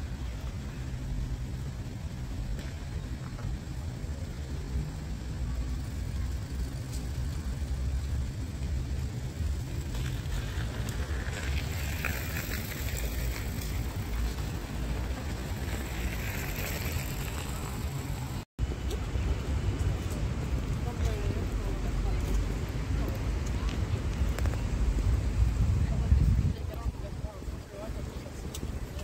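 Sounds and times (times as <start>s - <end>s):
distant road traffic rumble: 0.0s - 29.0s.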